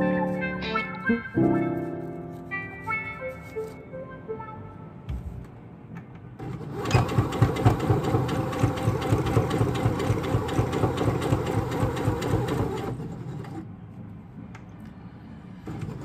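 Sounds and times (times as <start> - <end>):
sewing machine stitching: 6.4 - 13.6, 15.6 - 16.0.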